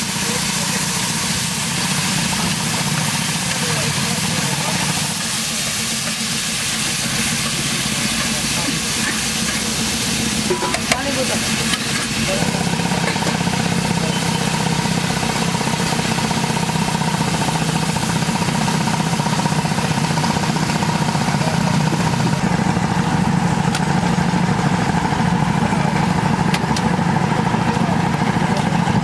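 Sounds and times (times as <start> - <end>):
gravy boiling and bubbling: 0.0 - 27.7.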